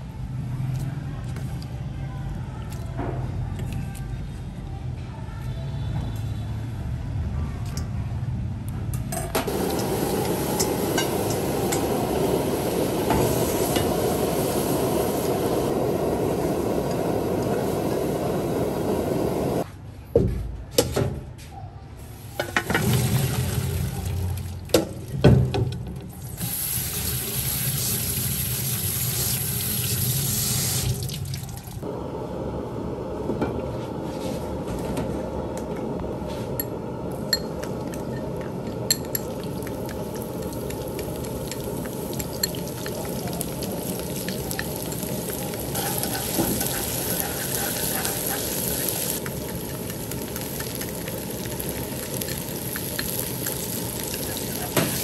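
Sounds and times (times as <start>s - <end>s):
water boiling in a wok: 9.5s - 19.7s, 22.3s - 32.0s, 37.3s - 55.0s
spray tap running over colander: 39.4s - 55.0s.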